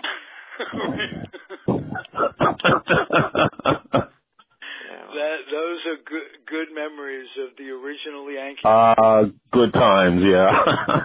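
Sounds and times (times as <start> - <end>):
man laughing: 0.0 - 4.2, 10.4 - 11.0.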